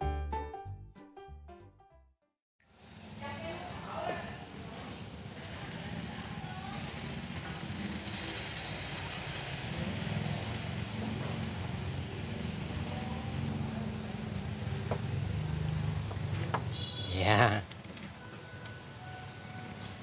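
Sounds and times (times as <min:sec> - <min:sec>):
aerosol spray can hissing: 0:05.4 - 0:13.5.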